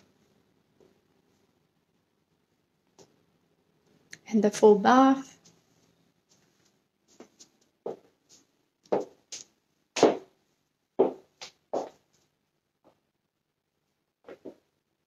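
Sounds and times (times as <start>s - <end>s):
footsteps on tile floor: 5.4s - 10.3s, 11.0s - 12.2s, 14.3s - 14.6s.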